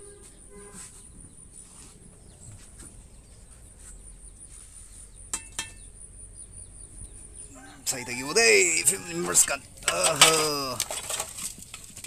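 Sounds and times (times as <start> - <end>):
metal pots clinking: 5.3 - 5.9, 8.8 - 12.0.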